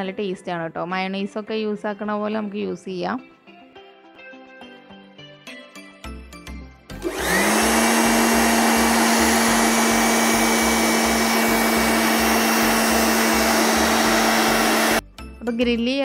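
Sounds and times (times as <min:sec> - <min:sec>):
electric air blower running: 0:07.0 - 0:15.0.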